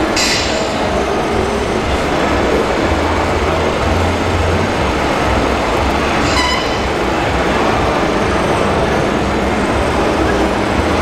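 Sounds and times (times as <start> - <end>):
model excavator mechanical hum: 0.0 - 11.0
short high squeal: 6.2 - 7.0.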